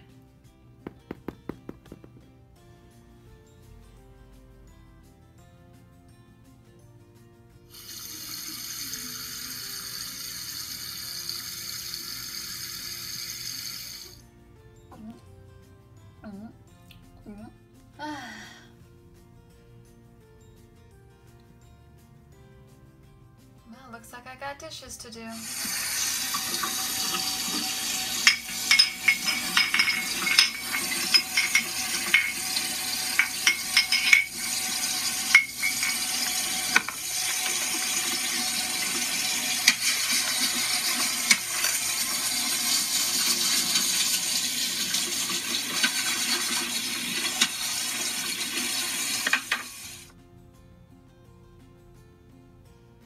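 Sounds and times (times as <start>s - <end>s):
water running: 7.7s - 14.2s, 25.4s - 50.1s
toy dishes clinking in sink: 25.4s - 50.1s.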